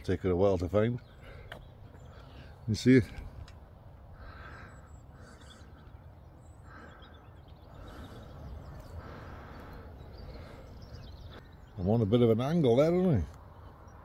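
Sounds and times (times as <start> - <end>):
faint bird chirps: 4.2 - 14.0.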